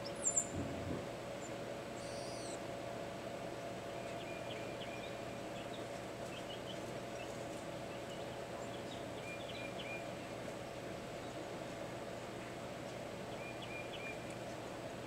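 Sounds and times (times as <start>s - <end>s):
songbird twittering: 0.0s - 0.5s, 1.4s - 2.6s, 4.0s - 7.3s, 8.1s - 10.1s, 13.3s - 14.2s
low hum: 0.0s - 2.6s
outdoor background hiss: 0.0s - 15.0s.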